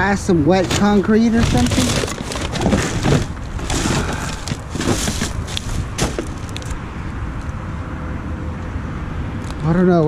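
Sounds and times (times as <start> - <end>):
rubbish rustling and knocking: 0.6 - 6.8.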